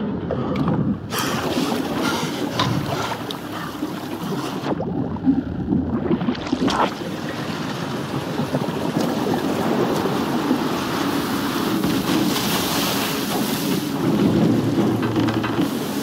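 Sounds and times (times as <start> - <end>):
rough sea water churning: 0.0 - 16.0
wind: 0.0 - 16.0
waves crashing: 6.1 - 15.0.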